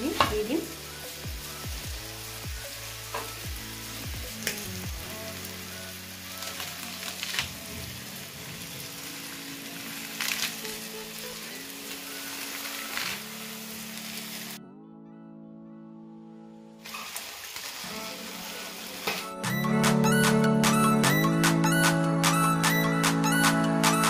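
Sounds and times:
food sizzling in a pan: 0.0s - 14.6s, 16.8s - 19.5s
soft background music: 0.0s - 24.0s.

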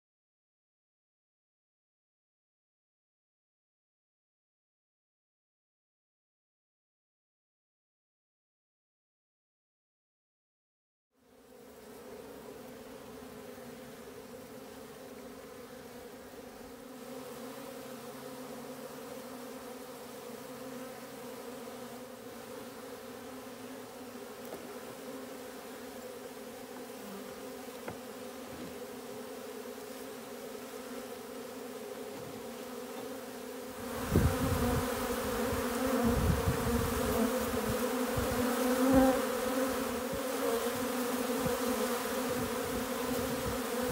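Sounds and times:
honeybees buzzing: 11.2s - 43.9s.

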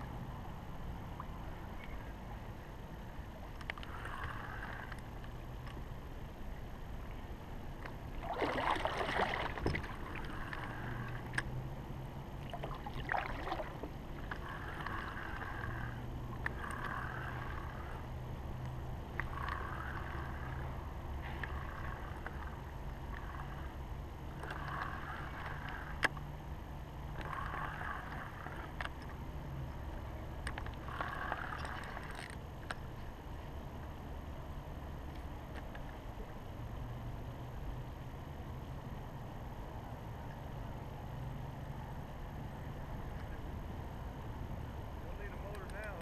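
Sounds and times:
low steady hum: 0.0s - 46.0s
kayak paddle splashing: 8.0s - 11.2s, 12.4s - 15.4s
water washing against kayak hull: 8.1s - 10.6s.

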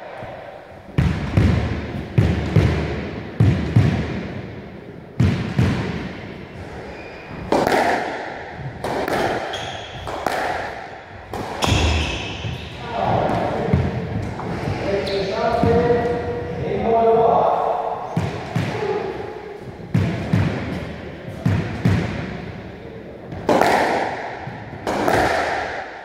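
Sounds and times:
squash ball smacks: 1.0s - 4.3s, 5.2s - 6.2s, 7.5s - 12.7s, 18.1s - 19.0s, 19.9s - 22.3s, 23.3s - 26.0s.

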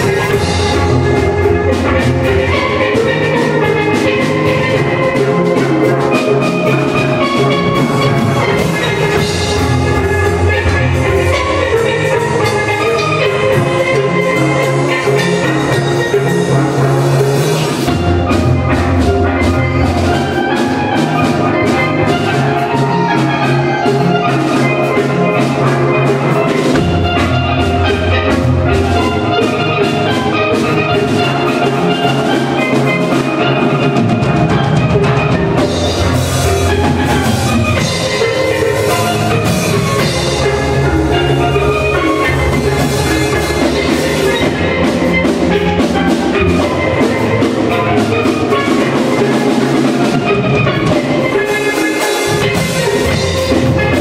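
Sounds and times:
steel pan band playing: 0.0s - 54.0s.

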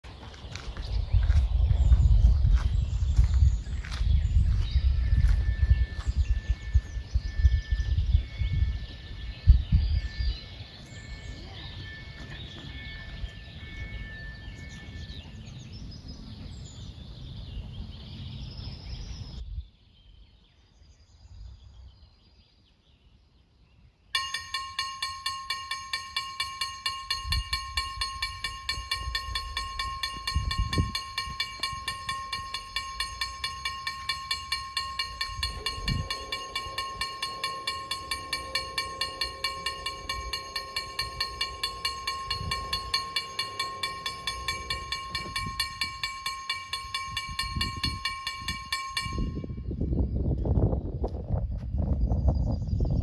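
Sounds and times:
birds: 0.0s - 53.0s
level-crossing warning bell ringing: 4.5s - 15.8s, 24.2s - 49.9s
low steady hum: 24.2s - 50.7s.

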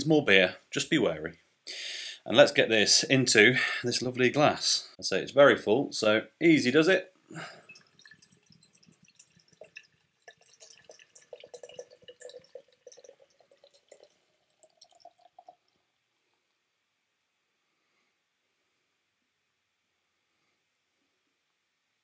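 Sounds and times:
stout trickling into a glass: 7.4s - 16.1s.

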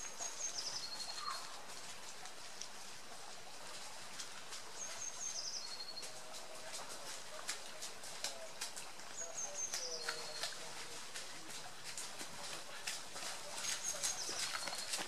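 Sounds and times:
songbird singing: 0.0s - 1.6s, 4.3s - 12.8s, 13.4s - 15.0s.

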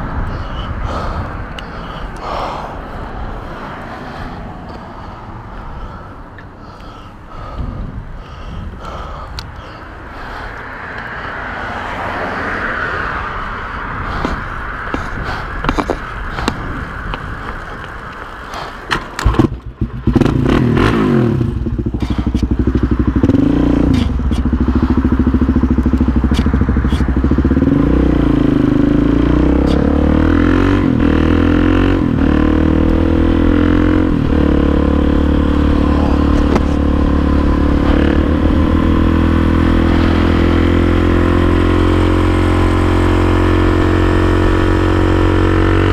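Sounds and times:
motorcycle engine revving and running: 19.2s - 45.9s.

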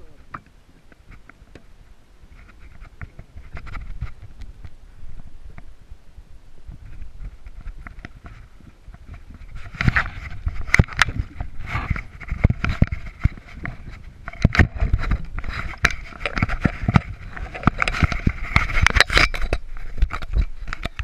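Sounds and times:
microphone rubbing and scraping: 0.0s - 21.0s
sharp knocks and clicks: 7.4s - 21.0s.

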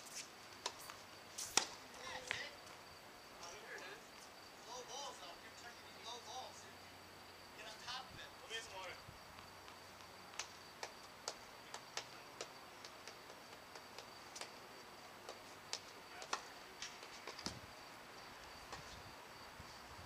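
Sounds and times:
tennis balls tapping on court: 0.6s - 2.4s, 9.6s - 14.6s, 15.2s - 17.6s.

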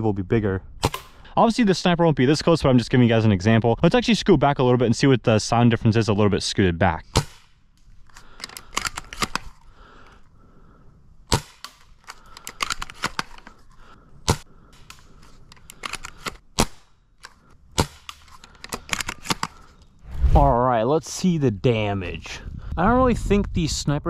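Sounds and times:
airsoft rifle shots: 7.1s - 7.6s, 11.3s - 11.8s, 17.8s - 18.2s
clicks and rattles: 11.7s - 13.6s, 14.8s - 16.4s.

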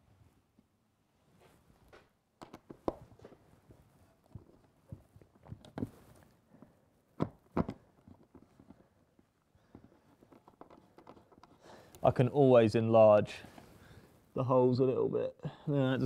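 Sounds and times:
wooden knocks and clicks: 9.6s - 11.6s.

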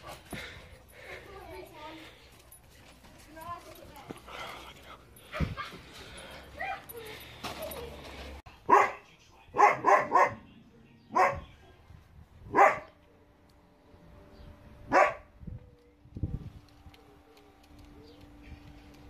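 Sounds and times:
dog barking: 8.7s - 10.4s, 11.1s - 11.5s, 12.5s - 13.0s, 14.9s - 15.3s.

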